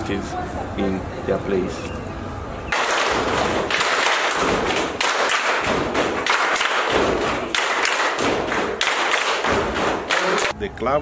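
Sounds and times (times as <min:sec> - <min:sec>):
children clapping in pattern: 0:02.7 - 0:10.6
heavy thuds: 0:09.4 - 0:10.1.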